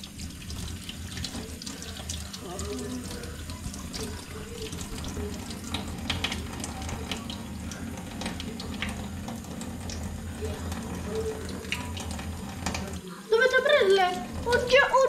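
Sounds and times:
tap running into steel sink: 0:02.7 - 0:13.0.

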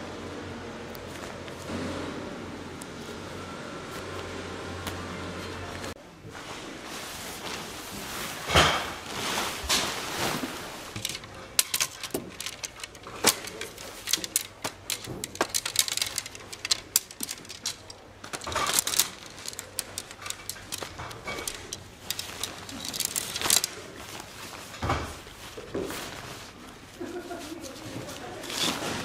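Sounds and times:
tent fabric rustling: 0:04.9 - 0:29.0
tent poles clicking together: 0:10.9 - 0:29.0.

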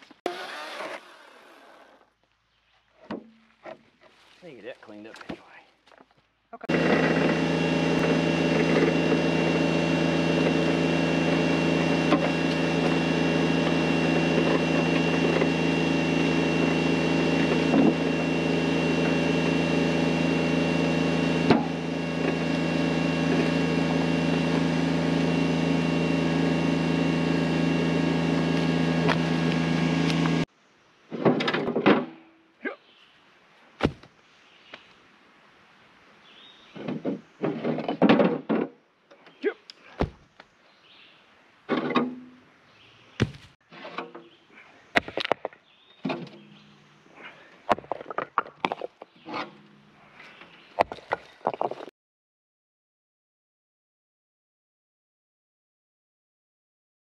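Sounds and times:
tractor engine running: 0:06.6 - 0:30.5.

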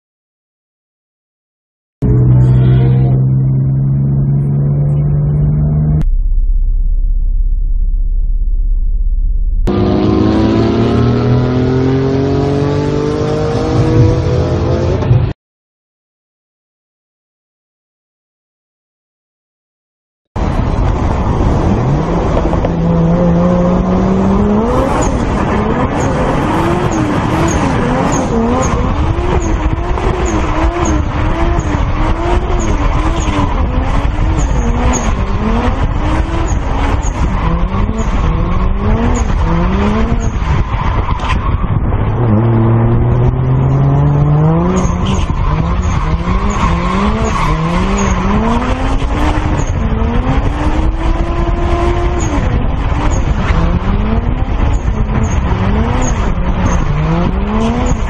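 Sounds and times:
car engine revving hard: 0:09.7 - 0:15.3, 0:20.4 - 0:58.0
tyres squealing and skidding: 0:24.5 - 0:42.4, 0:43.5 - 0:49.8, 0:54.6 - 0:58.0.

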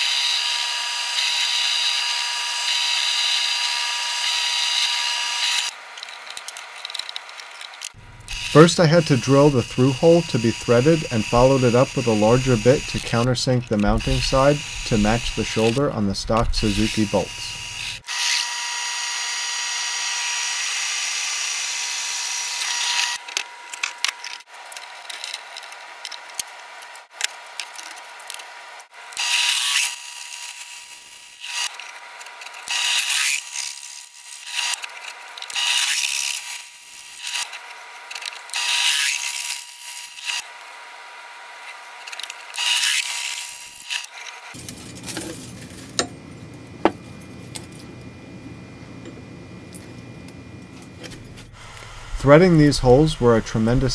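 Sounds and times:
drill bit cutting metal: 0:00.0 - 0:05.7, 0:08.0 - 0:24.0, 0:29.1 - 0:31.8, 0:32.5 - 0:34.9, 0:35.5 - 0:40.5, 0:42.2 - 0:44.1
drill whining: 0:00.0 - 0:05.8, 0:07.9 - 0:24.0, 0:29.1 - 0:40.6, 0:41.6 - 0:46.1, 0:50.8 - 0:53.8
countersink bit short cuts: 0:07.8 - 0:18.5.

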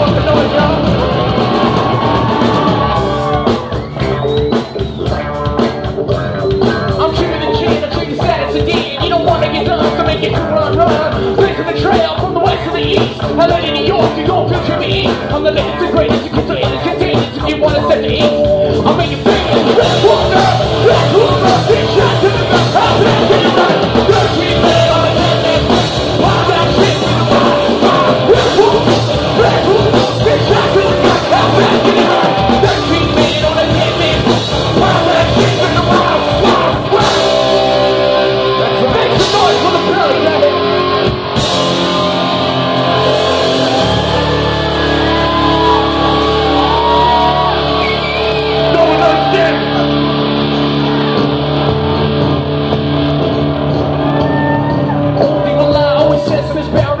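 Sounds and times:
bass guitar: 0:00.0 - 0:57.0
drums: 0:00.0 - 0:57.0
electric guitar: 0:00.0 - 0:57.0
person singing and yelling: 0:06.6 - 0:41.0, 0:41.7 - 0:50.0, 0:54.1 - 0:57.0.

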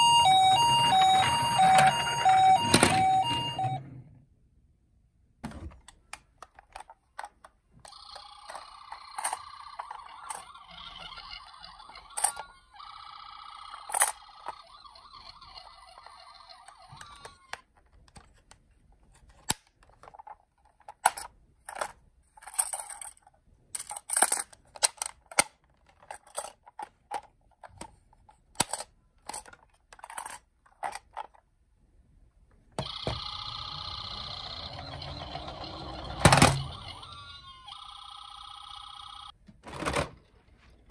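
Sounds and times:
toy ambulance electronic siren: 0:00.0 - 0:03.8, 0:07.9 - 0:17.6, 0:32.8 - 0:39.4
plastic toy vehicles clacking: 0:19.2 - 0:31.5.

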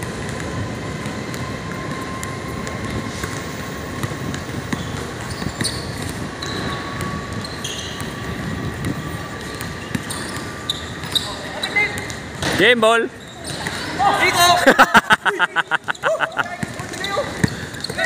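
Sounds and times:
basketball bouncing on concrete: 0:00.2 - 0:11.2, 0:16.5 - 0:18.0
short high squeaks: 0:04.7 - 0:08.2, 0:09.4 - 0:12.0, 0:13.1 - 0:14.0.

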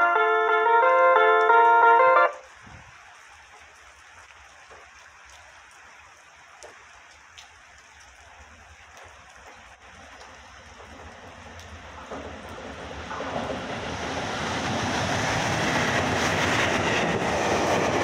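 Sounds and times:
light rain hissing: 0:02.4 - 0:13.1
faint low train rumble: 0:09.1 - 0:18.0.

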